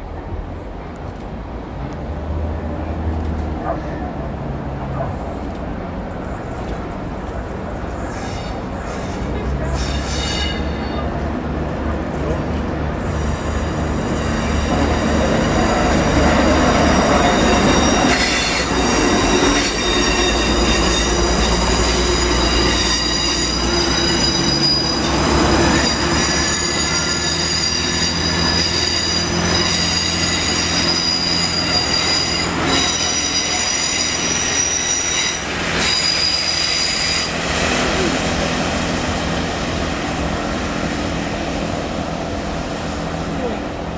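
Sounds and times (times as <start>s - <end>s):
train wheel flange squeal: 7.9s - 11.2s, 12.9s - 39.5s.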